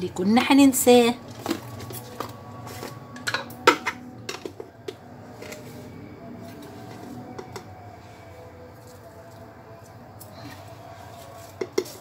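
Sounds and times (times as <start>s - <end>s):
dishes and utensils clinking: 1.3s - 4.7s.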